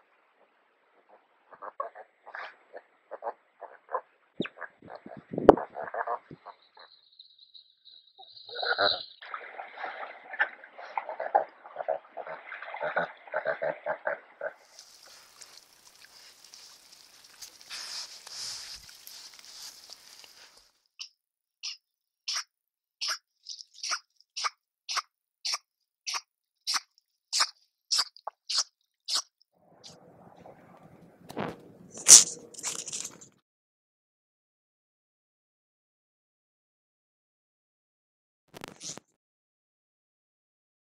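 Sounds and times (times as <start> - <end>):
otter crunching food: 14.6 - 22.4, 23.0 - 29.3, 31.3 - 33.3
river otters calling: 20.4 - 26.8, 27.4 - 30.0.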